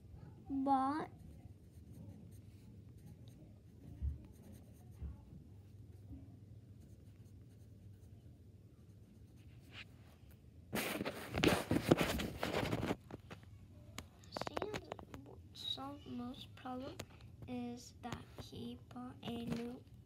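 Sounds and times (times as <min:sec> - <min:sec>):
pencil scratching on paper: 0:01.1 - 0:05.0, 0:06.7 - 0:08.2.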